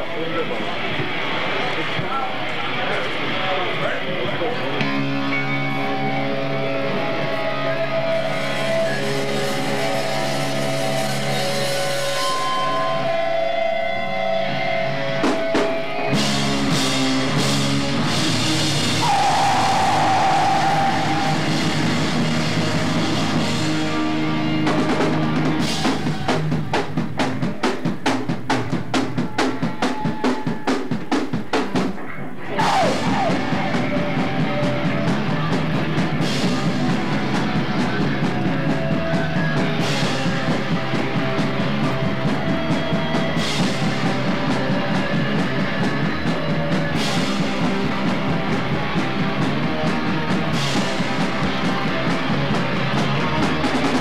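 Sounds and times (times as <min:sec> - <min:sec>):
live rock band playing: 0:04.3 - 0:54.0
rapid drum hits: 0:18.0 - 0:23.8.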